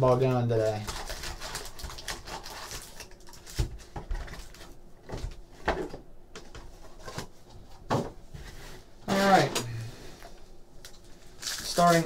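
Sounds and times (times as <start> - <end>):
foil packs rustling: 0.2 - 5.4, 11.2 - 12.0.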